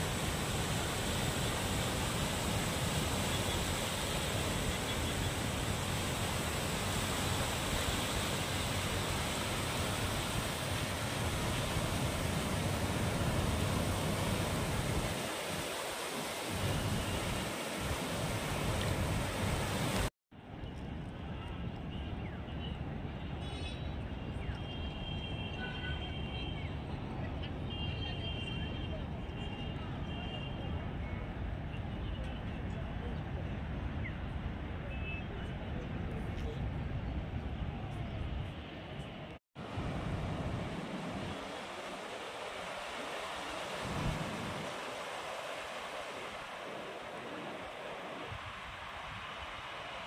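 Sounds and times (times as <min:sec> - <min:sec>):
small waves breaking on sand: 0:00.0 - 0:20.1, 0:39.6 - 0:50.0.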